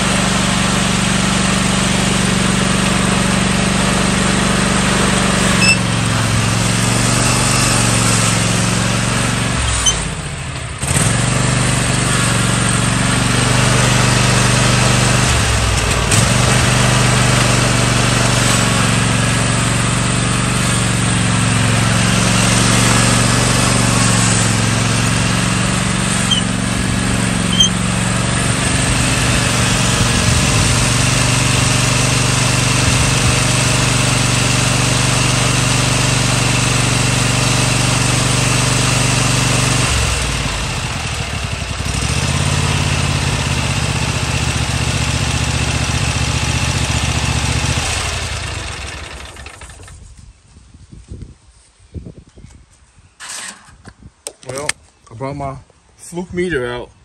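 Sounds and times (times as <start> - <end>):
riding mower engine running: 0.0 - 50.3, 53.2 - 53.7.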